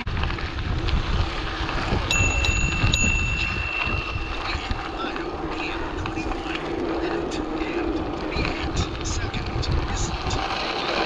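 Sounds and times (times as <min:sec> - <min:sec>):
bike tyres rolling on gravel: 0:00.0 - 0:11.0
wind buffeting microphone: 0:00.0 - 0:11.0
bicycle bell ringing: 0:02.0 - 0:05.1.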